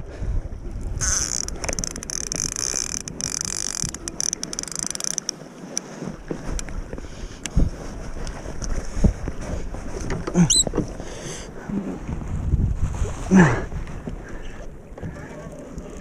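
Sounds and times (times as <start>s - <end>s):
wind buffeting microphone: 0.0s - 4.9s, 6.1s - 16.0s
water splashing against kayak hull: 0.0s - 16.0s
knocks and thumps on hull: 6.2s - 11.1s, 15.0s - 15.4s.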